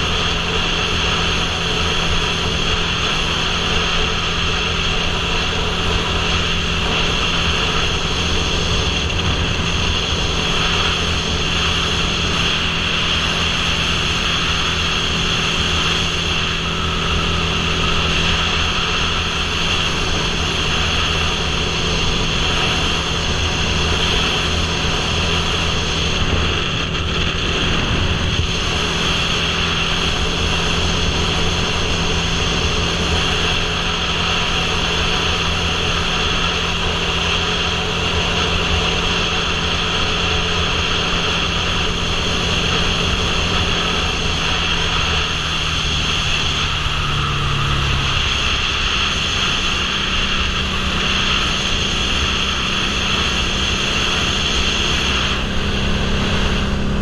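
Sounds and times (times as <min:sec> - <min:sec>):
motorcycle engine cruising: 0:00.0 - 0:57.0
wind rushing over microphone: 0:00.0 - 0:57.0.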